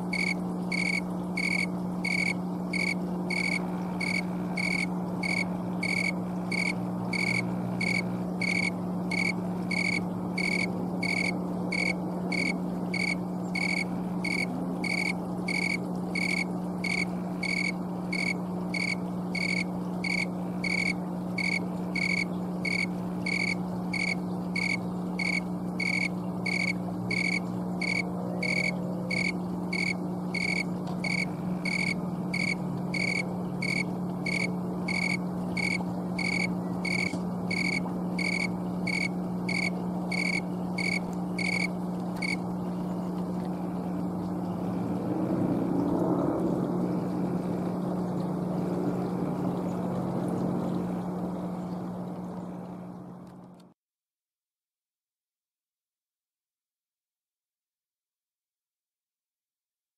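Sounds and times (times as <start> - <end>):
steady low hum: 0.0 - 53.6
cricket chirping: 0.1 - 42.4.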